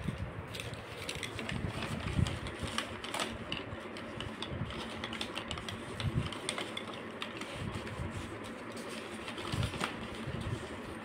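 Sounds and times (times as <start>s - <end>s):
paper cards on wooden sticks handled: 0.0s - 11.0s.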